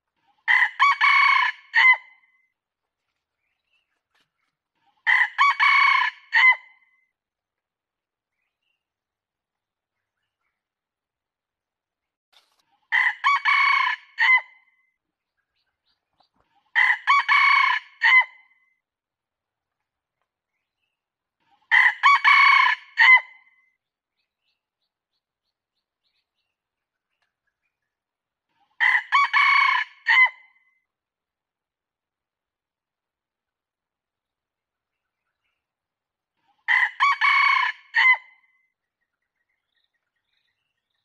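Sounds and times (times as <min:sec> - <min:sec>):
rooster crowing: 0:05.1 - 0:06.6, 0:13.0 - 0:14.4, 0:16.8 - 0:18.3, 0:21.7 - 0:23.3, 0:28.8 - 0:30.4, 0:36.7 - 0:38.2.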